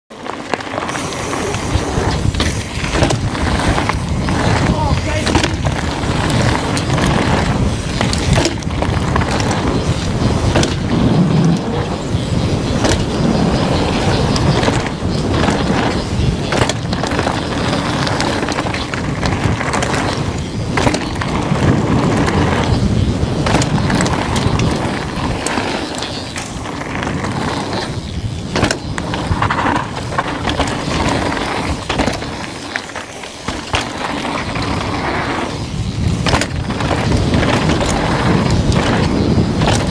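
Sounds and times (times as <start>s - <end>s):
bike clattering over bumps: 0.1s - 39.9s
bike tyres rolling on rocks: 0.1s - 39.9s
wind buffeting microphone: 0.7s - 32.7s, 33.6s - 39.9s.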